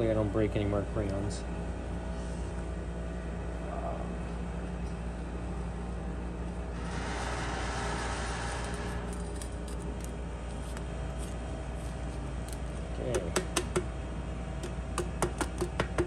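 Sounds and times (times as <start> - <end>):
steady low hum: 0.0 - 16.0
rough scraping rub: 6.8 - 12.2.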